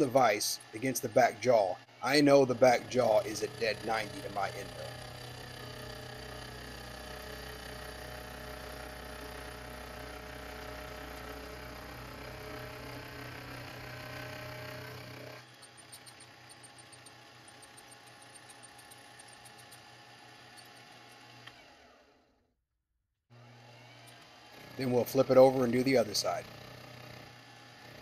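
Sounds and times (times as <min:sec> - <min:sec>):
milling cutter on brass: 0:00.0 - 0:08.1, 0:09.2 - 0:21.3
milling machine motor hum: 0:00.0 - 0:22.2, 0:23.3 - 0:28.0.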